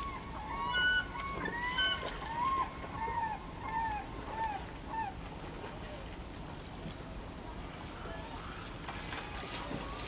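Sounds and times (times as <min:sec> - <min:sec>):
birds calling: 0:00.0 - 0:05.2.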